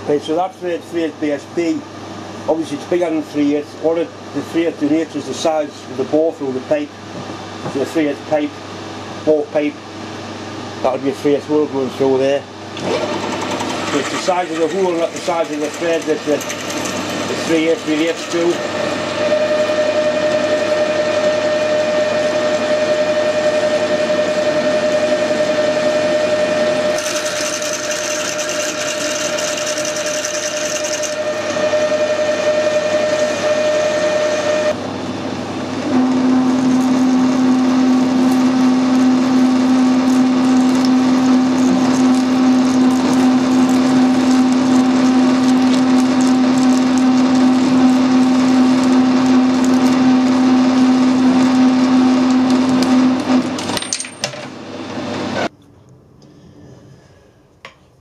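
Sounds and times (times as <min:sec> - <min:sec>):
lathe low steady hum: 0:00.0 - 0:53.7
metal lathe whining: 0:12.8 - 0:34.8, 0:35.8 - 0:53.5
drill cutting hiss: 0:24.6 - 0:34.8.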